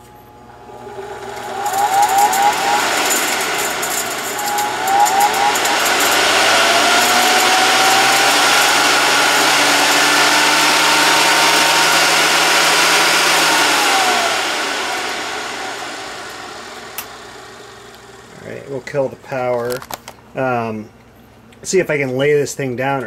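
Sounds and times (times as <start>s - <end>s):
air rushing: 0.0s - 17.7s
vacuum cleaner motor whine: 0.0s - 19.0s.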